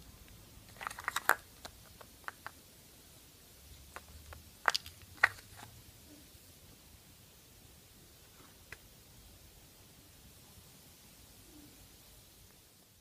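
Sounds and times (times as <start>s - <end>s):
plastic figurines clicking: 0.7s - 2.6s, 3.9s - 5.7s.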